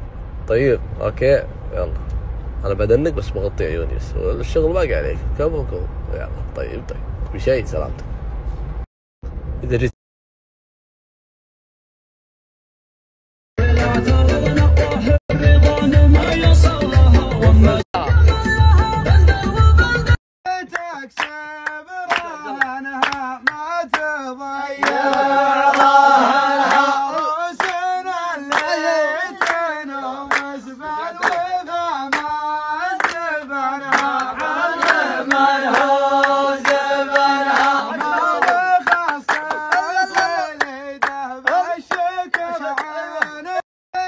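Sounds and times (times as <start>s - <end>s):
rhythmic hand-clapping: 20.7s - 24.2s, 24.8s - 43.6s.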